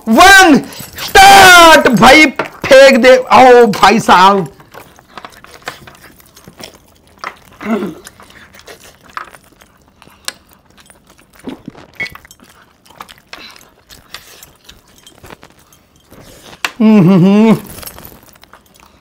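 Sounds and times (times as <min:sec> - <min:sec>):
metal chains clinking: 0:00.0 - 0:19.0
chewing and lip-smacking: 0:04.5 - 0:16.8, 0:17.6 - 0:19.0.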